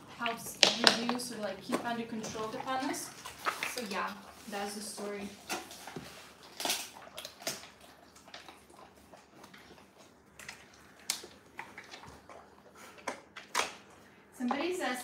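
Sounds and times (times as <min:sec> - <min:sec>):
dog licking and chewing: 0:00.0 - 0:14.7
sharp clicks and smacks: 0:00.4 - 0:01.9.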